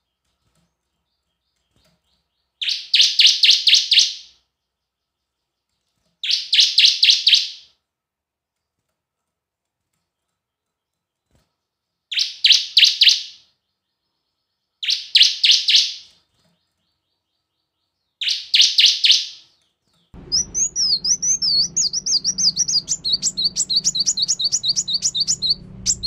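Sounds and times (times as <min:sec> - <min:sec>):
small bird twittering song: 0:00.0 - 0:07.7, 0:10.1 - 0:26.0
bird calling sharp high notes: 0:20.2 - 0:26.0.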